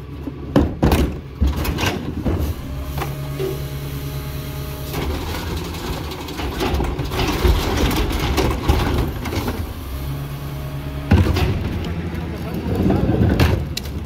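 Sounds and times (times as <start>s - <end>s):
clanking and rattling: 0.6s - 3.6s, 4.9s - 9.8s, 11.0s - 14.0s
garbage truck engine revving: 1.8s - 14.0s.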